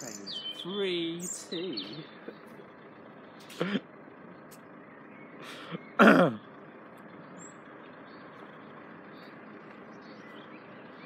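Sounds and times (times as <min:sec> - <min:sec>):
person vocal grunts: 0:06.0 - 0:06.4.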